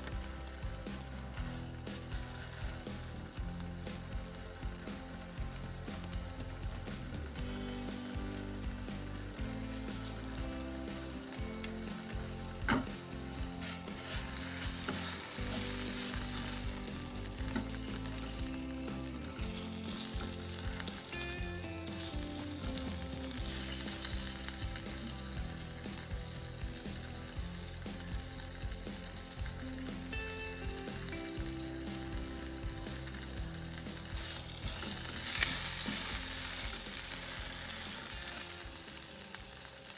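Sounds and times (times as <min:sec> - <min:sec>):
chicken sizzling in oil: 0:00.0 - 0:39.9
spatula pressing food: 0:12.6 - 0:18.6.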